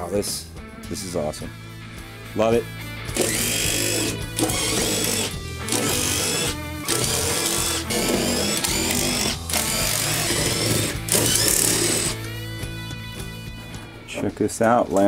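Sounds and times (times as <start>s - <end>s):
background music: 0.0s - 15.0s
power drill bursts: 3.2s - 12.2s.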